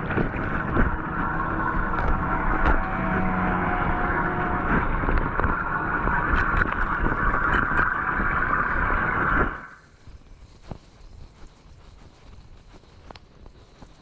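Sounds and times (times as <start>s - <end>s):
water rushing down a drain: 0.0s - 9.9s.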